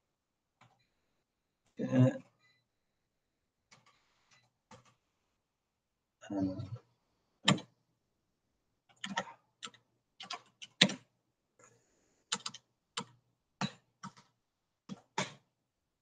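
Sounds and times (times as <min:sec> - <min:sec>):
keyboard typing: 0:03.7 - 0:05.0, 0:07.4 - 0:07.7, 0:08.9 - 0:11.1, 0:12.3 - 0:15.5.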